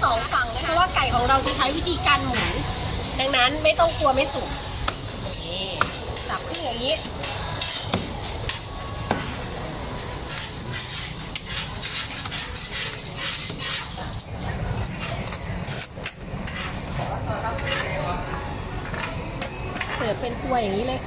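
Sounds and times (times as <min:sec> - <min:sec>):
kitchen utensils and dishes clattering: 0:03.8 - 0:08.8, 0:10.0 - 0:20.8.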